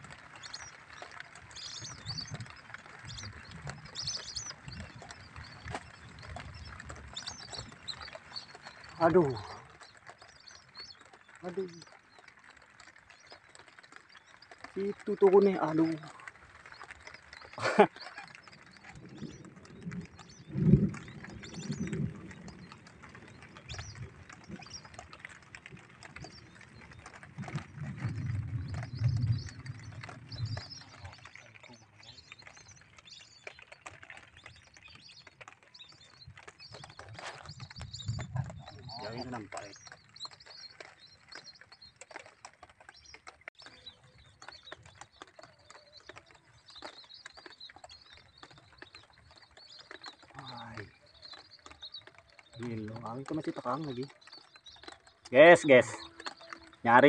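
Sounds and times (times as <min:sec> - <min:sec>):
bird chirps and clicks: 0:00.0 - 0:57.0
ducks whistling calls: 0:44.9 - 0:57.0.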